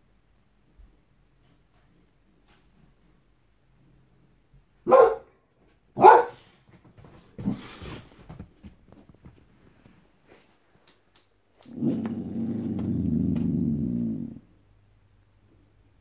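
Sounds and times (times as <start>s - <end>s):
dog barking deeply: 4.9s - 5.3s, 6.0s - 6.4s.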